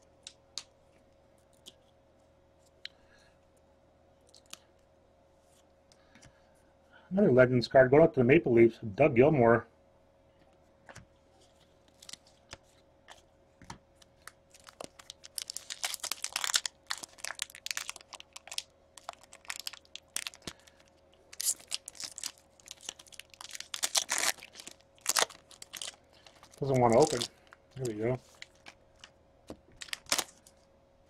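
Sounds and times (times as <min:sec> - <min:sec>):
wrapper crinkling and tearing: 0:11.5 - 0:13.2, 0:14.0 - 0:30.7.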